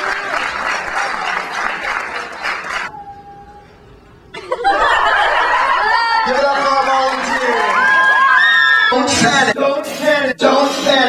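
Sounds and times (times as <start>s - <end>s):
audience applauding: 0.0s - 2.9s, 5.0s - 9.0s
faint tone: 2.9s - 4.3s.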